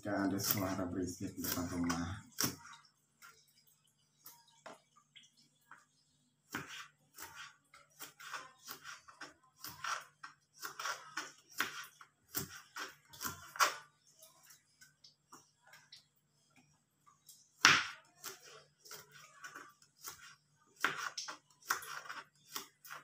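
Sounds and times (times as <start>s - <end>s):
knife slicing beans on board: 6.5s - 13.8s, 17.6s - 23.0s.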